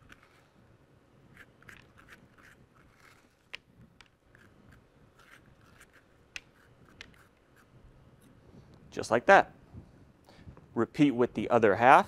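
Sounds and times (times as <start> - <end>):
spoon scraping squash: 1.3 - 3.5, 4.3 - 7.7.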